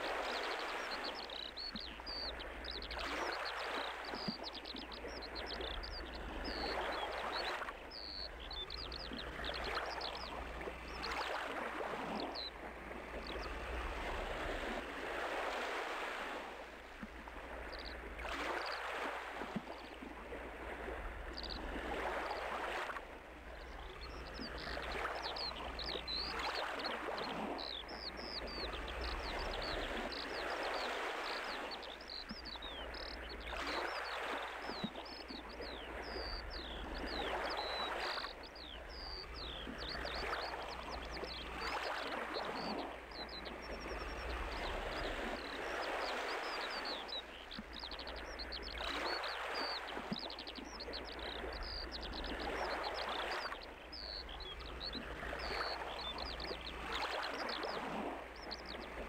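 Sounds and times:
small birds chirping: 0.2 - 11.3, 23.6 - 59.0.

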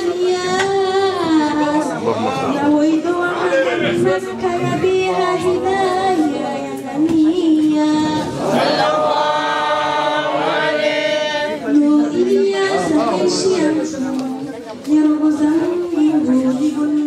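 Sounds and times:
voices chanting a hymn: 8.2 - 13.8.

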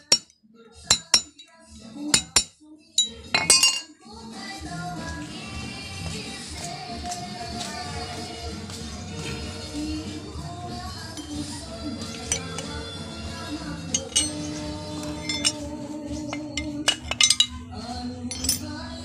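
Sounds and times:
metal rod striking hub: 13.9 - 15.7.

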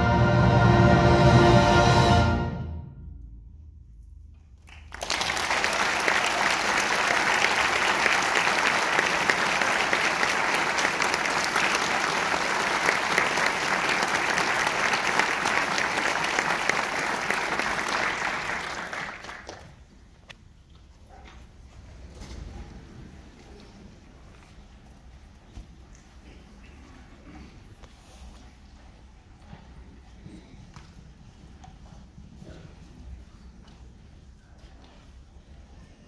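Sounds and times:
audience applause: 4.7 - 19.9.

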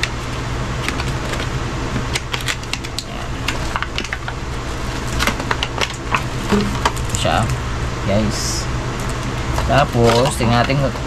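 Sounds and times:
packaging clicks and crackles: 0.0 - 7.5
steady low hum: 0.0 - 11.0.

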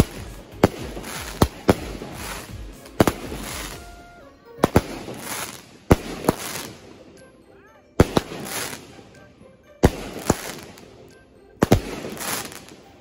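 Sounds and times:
hiss and crackle of sparks: 0.0 - 4.0, 4.7 - 6.8, 8.0 - 8.9, 10.1 - 10.8, 11.6 - 12.8
fireworks bangs: 0.0 - 6.8, 8.0 - 8.9, 9.8 - 10.8, 11.6 - 12.8.

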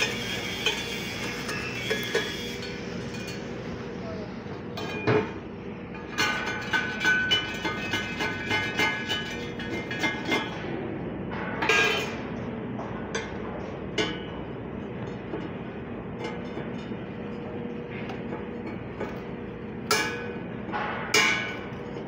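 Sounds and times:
machinery hum: 0.0 - 22.0
ringing metal clank: 19.9 - 21.8.

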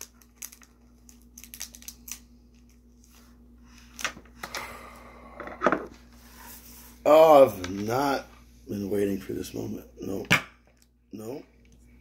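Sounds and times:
wrapper crinkling: 0.0 - 3.1.

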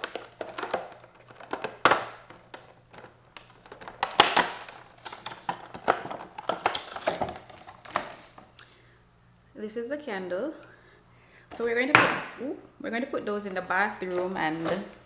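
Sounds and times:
plastic packaging crackling: 0.0 - 8.6.

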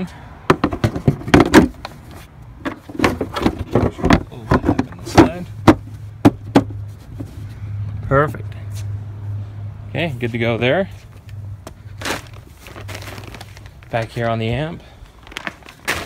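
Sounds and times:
plastic cover clunking and rattling: 0.5 - 2.0, 2.6 - 6.8, 15.2 - 16.0.

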